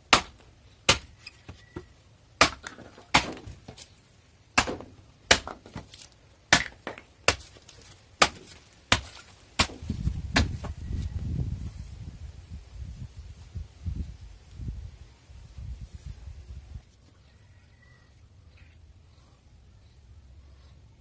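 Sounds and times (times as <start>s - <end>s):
chopper chopping bamboo: 0.1s - 1.2s, 2.4s - 3.8s, 4.6s - 10.7s.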